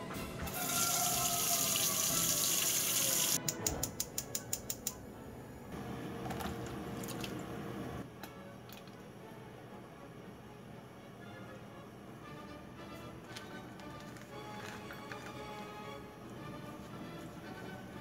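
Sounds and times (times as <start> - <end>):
water running from tap: 0.5 - 3.4.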